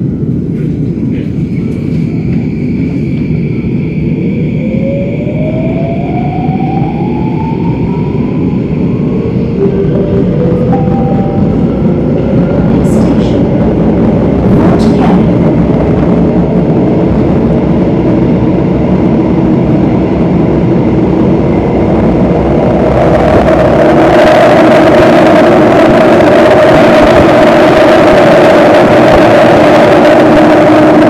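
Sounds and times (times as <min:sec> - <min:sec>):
steady whine: 0:00.0 - 0:31.0
train wheels rumbling on rail: 0:00.0 - 0:31.0.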